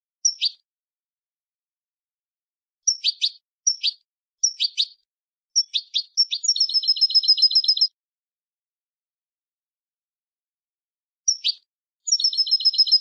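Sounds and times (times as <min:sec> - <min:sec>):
fast bird trill: 0:00.2 - 0:00.6, 0:02.9 - 0:05.0, 0:05.6 - 0:07.9, 0:11.3 - 0:13.0
goldfinch chirping song: 0:00.2 - 0:00.6, 0:02.9 - 0:05.0, 0:05.6 - 0:07.9, 0:11.3 - 0:13.0.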